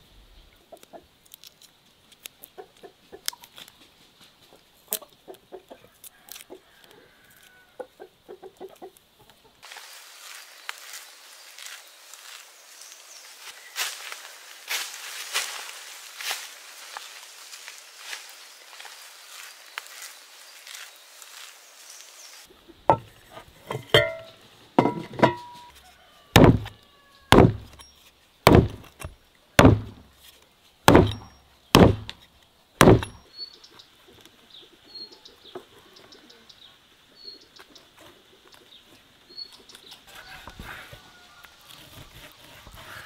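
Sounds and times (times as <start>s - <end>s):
knife chopping on wooden board: 26.4s - 26.7s, 27.3s - 27.8s, 28.5s - 29.0s, 29.6s - 30.0s, 30.9s - 32.2s, 32.8s - 33.2s
faint bird chirps: 33.2s - 37.9s.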